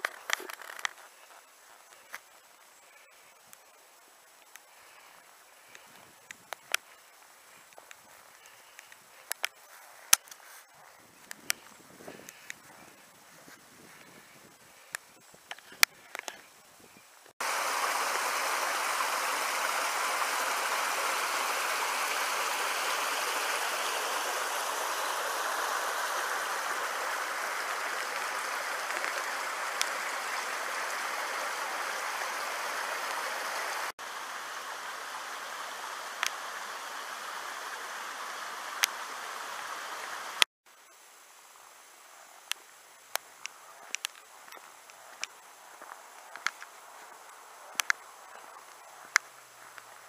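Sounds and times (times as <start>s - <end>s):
light ticks: 7.7s - 10.4s, 27.6s - 31.4s, 42.4s - 46.8s, 47.7s - 49.9s
waterfall splashing into pool: 17.4s - 40.5s.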